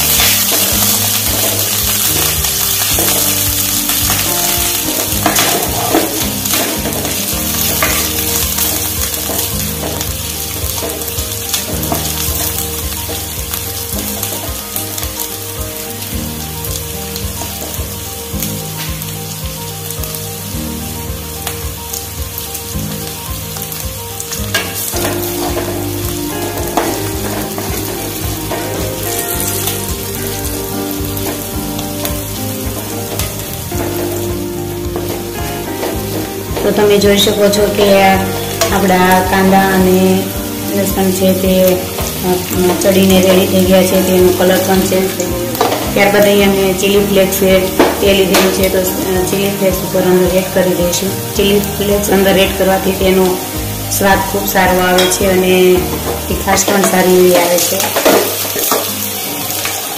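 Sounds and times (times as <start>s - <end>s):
spatula scraping and knocking pan: 0.0s - 15.0s, 24.4s - 40.0s, 40.8s - 49.9s, 54.1s - 59.8s
vegetables sizzling in hot oil: 0.0s - 59.9s.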